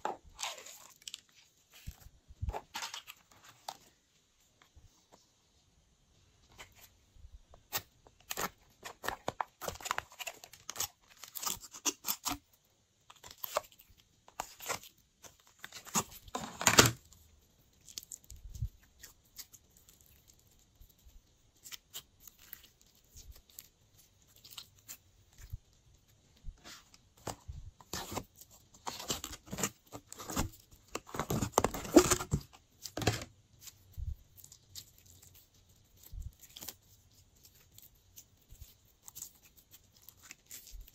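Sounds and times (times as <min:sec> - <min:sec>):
slime crackling and squelching: 0:00.0 - 0:04.0, 0:07.6 - 0:40.9.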